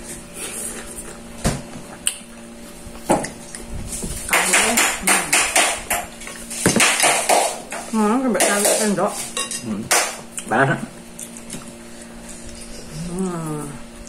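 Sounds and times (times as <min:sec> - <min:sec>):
faint steady hum: 0:00.0 - 0:14.0
eating smacks and clatters: 0:11.1 - 0:13.3.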